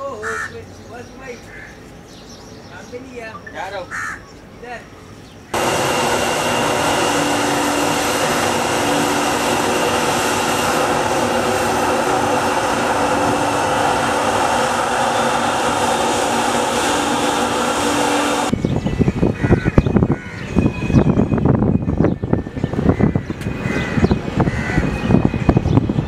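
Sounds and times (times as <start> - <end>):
jet aircraft noise: 5.5 - 26.0.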